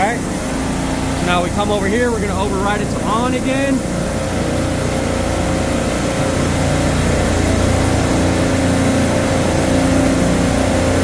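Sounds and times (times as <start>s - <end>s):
refrigeration compressor drone: 0.0s - 11.0s.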